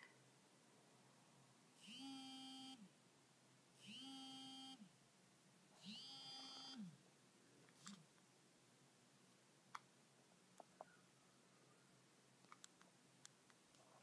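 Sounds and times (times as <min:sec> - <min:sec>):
phone vibrating buzzes: 0:01.8 - 0:02.9, 0:03.8 - 0:04.8, 0:05.8 - 0:06.9.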